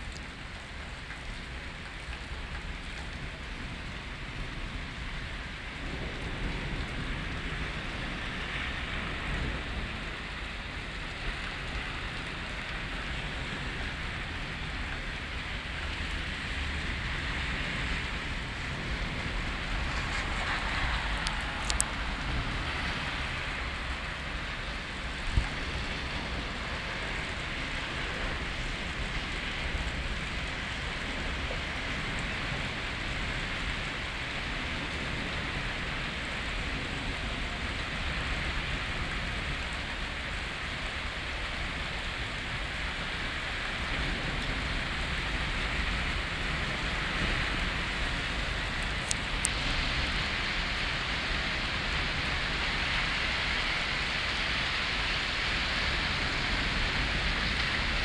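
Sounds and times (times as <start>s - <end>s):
heavy rain falling: 0.0s - 58.0s.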